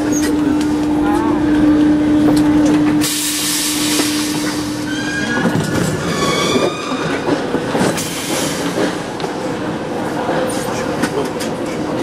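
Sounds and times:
train cars rattling: 0.0 - 12.0
high squeal of train brakes: 3.0 - 7.2.

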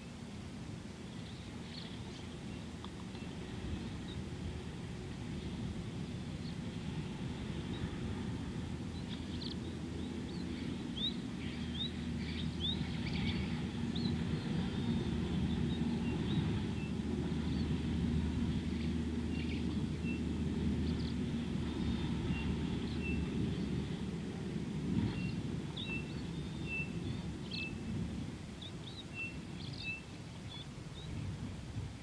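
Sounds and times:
steady low rumble: 0.0 - 32.0
small birds chirping and whistling: 25.1 - 27.9, 28.6 - 31.3.

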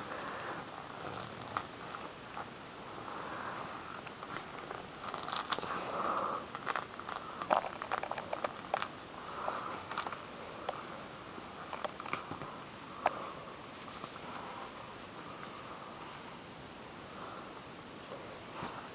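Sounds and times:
fruit rind tearing: 4.1 - 5.7, 6.5 - 9.1.

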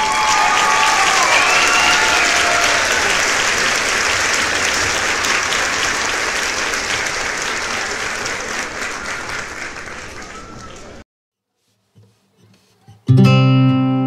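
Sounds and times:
crowd applause: 0.0 - 11.0
people cheering: 0.0 - 11.0.

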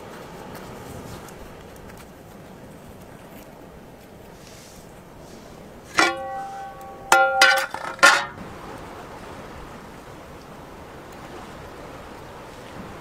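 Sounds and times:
surf: 0.0 - 13.0
wind: 0.0 - 13.0
sharp ringing notes: 6.0 - 8.4.

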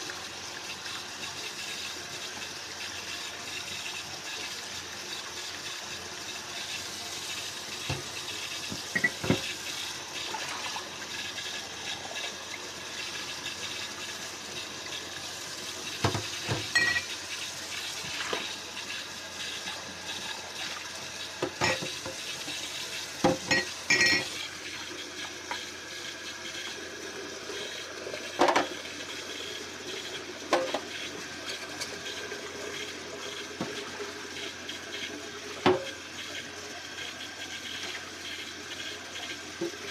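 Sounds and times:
tap water running into sink: 0.0 - 39.9
plates and utensils clinking: 16.1 - 17.1, 21.4 - 22.2, 23.3 - 24.4.

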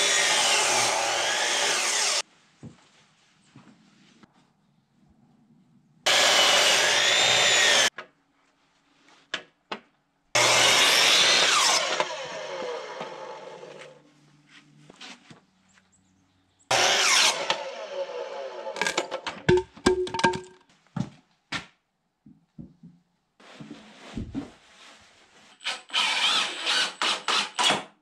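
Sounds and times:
miter saw cutting wood: 0.0 - 2.2, 6.1 - 7.9, 10.4 - 14.0, 16.7 - 19.2, 25.6 - 27.8.

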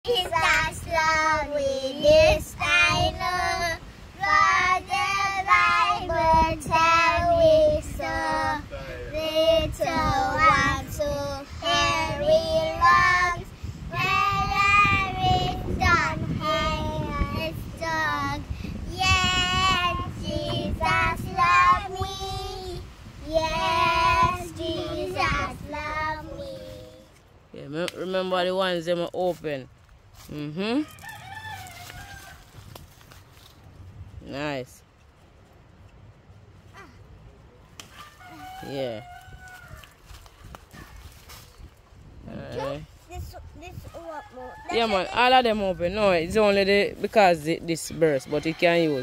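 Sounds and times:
girl singing: 0.0 - 27.1.

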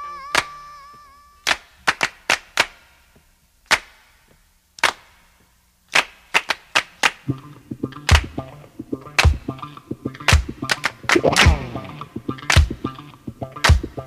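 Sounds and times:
held high tone: 0.0 - 1.4.

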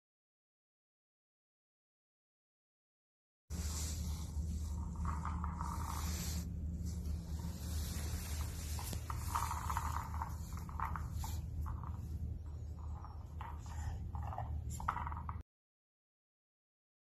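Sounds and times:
steady low hum: 3.5 - 15.4
toy scraping on tile floor: 3.5 - 15.4.

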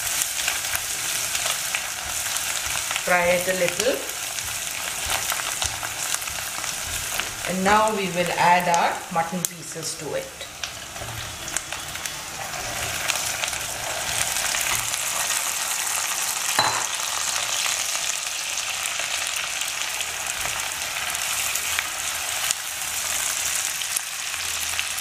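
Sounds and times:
spatula stirring in a pan: 0.0 - 8.4, 10.5 - 16.1
hot oil sizzling: 0.0 - 25.0.

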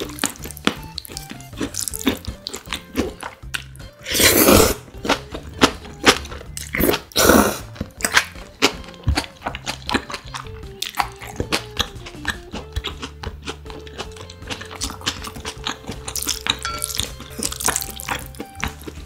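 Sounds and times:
crunching and chewing: 0.0 - 19.0
noodle slurps: 4.0 - 4.8.

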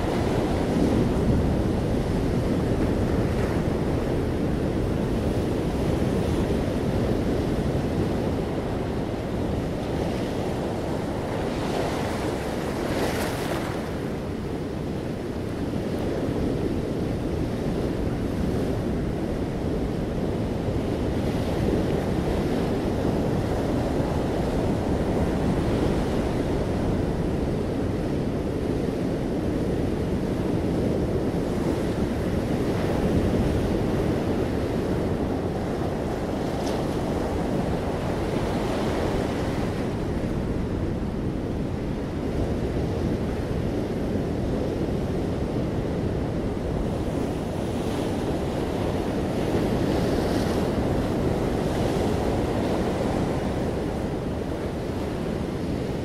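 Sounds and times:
ocean surf breaking: 31.6 - 56.0.

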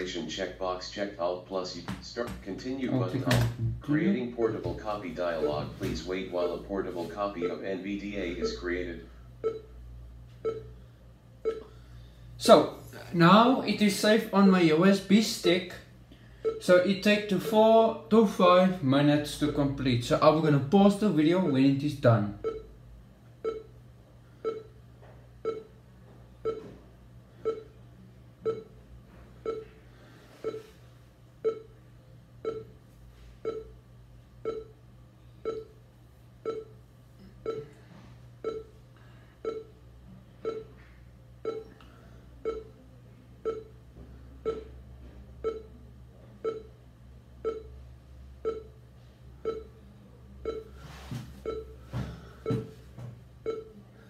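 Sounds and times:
short low beeps: 8.3 - 8.7, 9.4 - 9.7, 10.4 - 10.8, 11.4 - 11.8, 16.4 - 16.7, 22.4 - 22.7, 23.4 - 23.7, 24.4 - 24.8, 25.4 - 25.7, 26.4 - 26.7, 27.4 - 27.8, 28.4 - 28.8, 29.4 - 29.8, 30.4 - 30.7, 31.4 - 31.7, 32.4 - 32.8, 33.4 - 33.8, 34.4 - 34.7, 35.4 - 35.8, 36.4 - 38.8, 39.4 - 39.8, 40.4 - 41.8, 42.4 - 43.8, 44.4 - 44.8, 45.4 - 45.8, 46.4 - 46.8, 47.4 - 47.8, 48.4 - 48.8, 49.4 - 49.8, 50.4 - 50.8, 51.4 - 51.8, 53.4 - 53.8.

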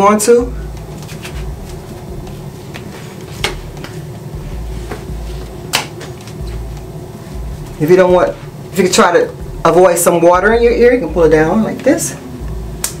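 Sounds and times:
low room hum: 0.0 - 13.0.

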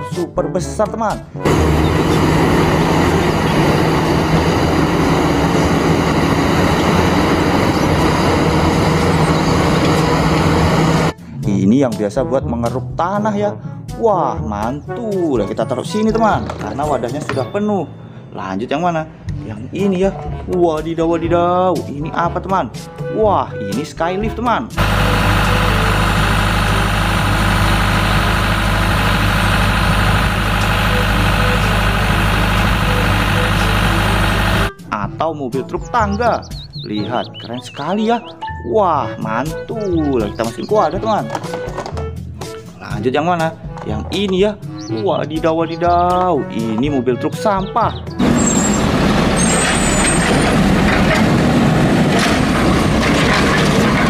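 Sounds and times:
excavator diesel engine under load: 1.4 - 11.2, 24.8 - 34.8, 48.2 - 54.0.

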